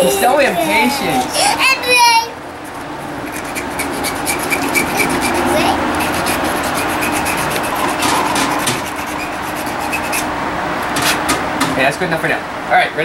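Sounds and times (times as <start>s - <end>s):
wood lathe running: 2.6s - 10.5s
sandpaper rasping on wood: 3.2s - 10.3s.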